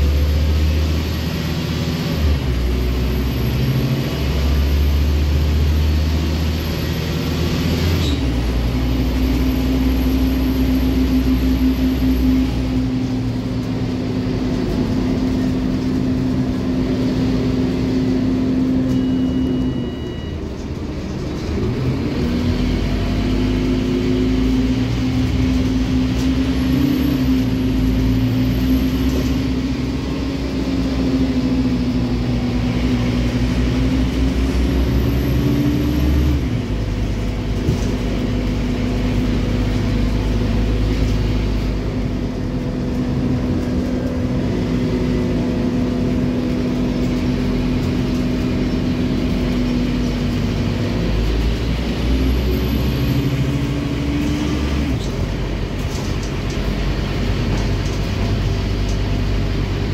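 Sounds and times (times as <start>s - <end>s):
bus engine drone: 0.0s - 59.9s
road noise: 0.0s - 59.9s
short high beep: 18.8s - 20.4s.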